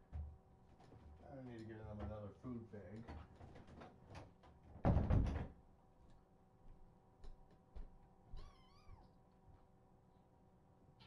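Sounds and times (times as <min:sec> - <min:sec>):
kitten meowing: 0:08.3 - 0:09.1.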